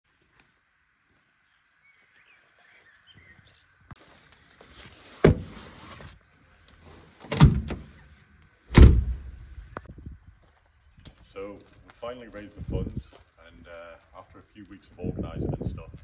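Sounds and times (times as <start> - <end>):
rustling: 4.0 - 8.3.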